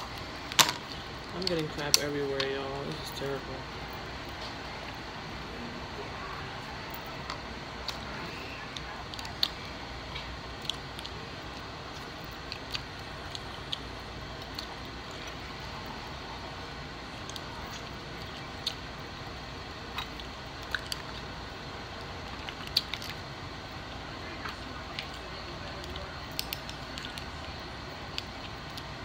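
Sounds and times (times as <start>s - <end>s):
person chewing: 6.1s - 19.0s, 19.6s - 23.3s.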